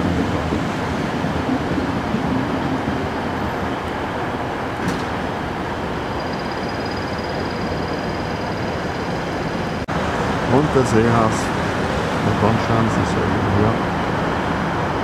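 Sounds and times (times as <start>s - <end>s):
vehicle rumble: 0.0s - 15.0s
faint high whine: 5.7s - 9.9s.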